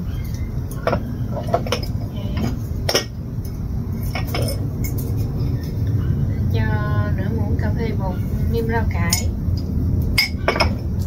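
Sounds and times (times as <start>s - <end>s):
steady low rumble: 0.0s - 11.0s
spoon and jars clinking: 4.0s - 5.3s.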